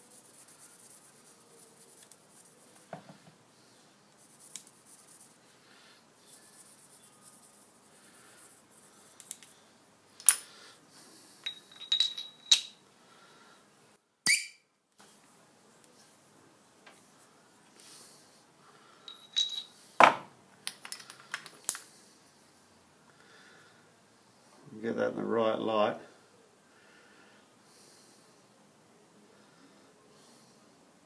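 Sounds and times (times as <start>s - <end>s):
sharp metal clinks: 11.4s - 12.8s, 19.0s - 19.8s.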